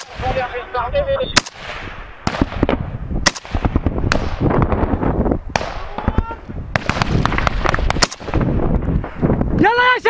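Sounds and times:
distant gunfire crackle: 0.0 - 0.4, 1.4 - 4.6, 5.5 - 6.1, 6.7 - 9.2
loud close rifle shots: 1.4 - 4.4, 6.7 - 8.5.

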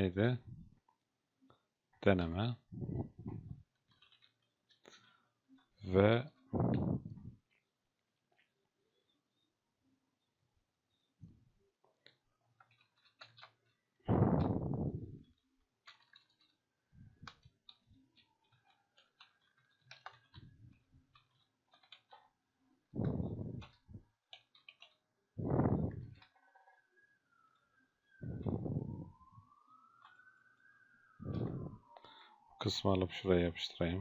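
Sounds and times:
keyboard typing: 3.6 - 4.9, 12.5 - 14.6, 15.2 - 27.5.

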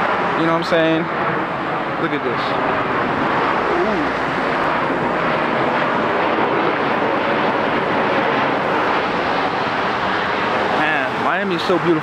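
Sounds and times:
jet airplane flying overhead: 0.0 - 12.0.

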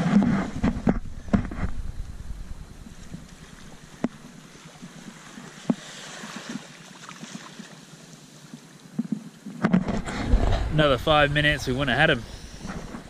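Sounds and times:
light wind: 0.0 - 13.0
small waves lapping: 2.7 - 13.0.

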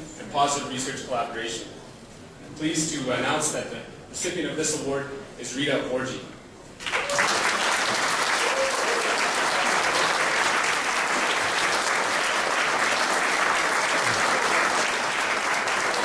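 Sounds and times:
audience applause: 6.8 - 16.0.

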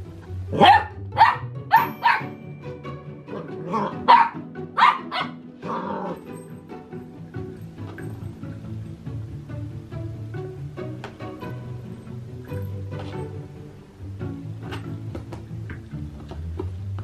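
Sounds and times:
puppy barking: 0.5 - 2.4, 3.3 - 6.2.

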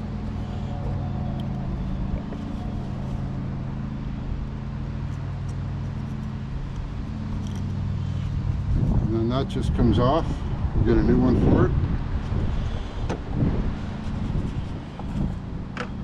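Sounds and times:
engine idling: 0.0 - 11.1.

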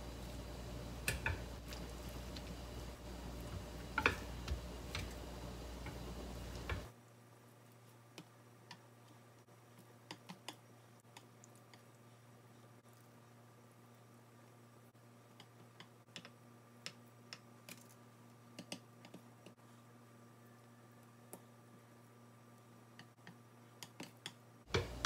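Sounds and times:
steady low hum: 0.0 - 7.0.

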